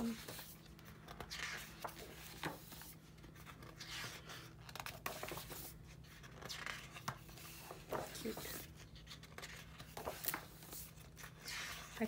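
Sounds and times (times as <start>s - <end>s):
book pages turning: 0.0s - 12.0s.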